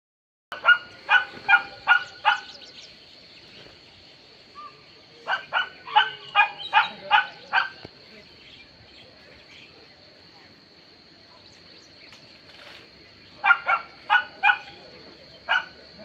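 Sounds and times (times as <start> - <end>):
dog barking: 0.5 - 2.5, 5.3 - 7.8, 13.4 - 14.8, 15.5 - 15.8.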